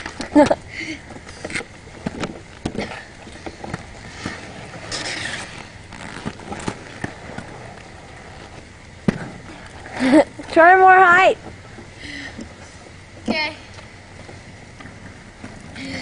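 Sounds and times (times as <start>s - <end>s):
skate wheels rolling on concrete: 0.0s - 16.0s
skates clacking and knocking: 1.2s - 11.9s.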